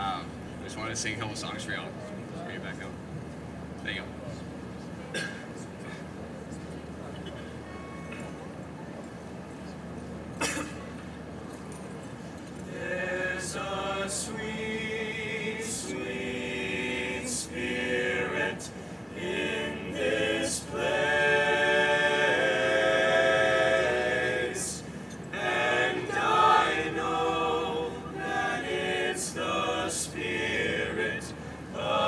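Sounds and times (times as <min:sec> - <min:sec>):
male a cappella group singing: 0:12.7 - 0:32.0.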